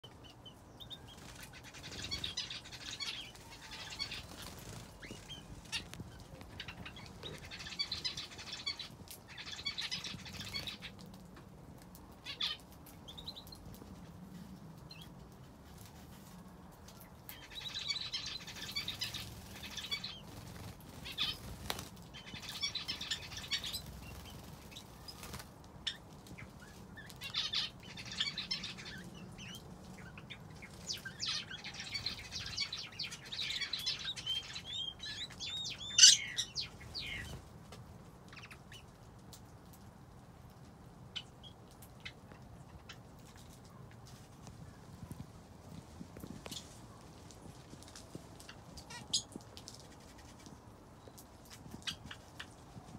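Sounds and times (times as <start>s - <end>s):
finches chirping and twittering: 0.2s - 10.9s, 17.3s - 37.4s
wings fluttering: 1.0s - 14.5s, 15.2s - 29.1s.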